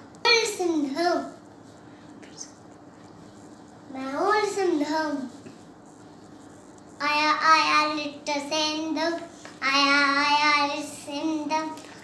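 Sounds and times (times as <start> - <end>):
boy singing: 7.0 - 12.0.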